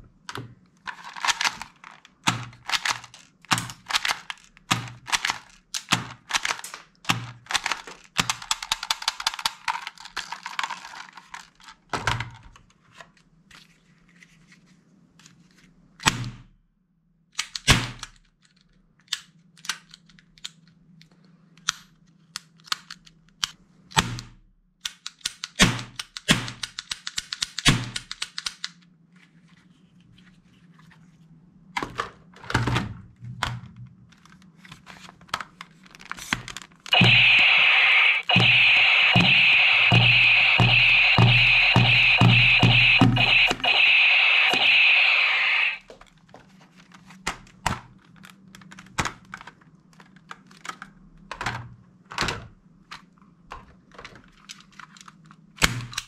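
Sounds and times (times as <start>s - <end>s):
plastic toy gun clicks and knocks: 0.2s - 12.6s, 17.3s - 20.8s, 21.6s - 28.8s, 52.3s - 56.0s.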